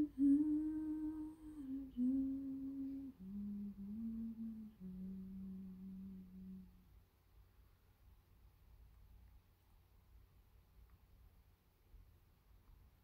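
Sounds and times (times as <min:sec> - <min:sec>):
person humming a slow tune: 0:00.0 - 0:06.9.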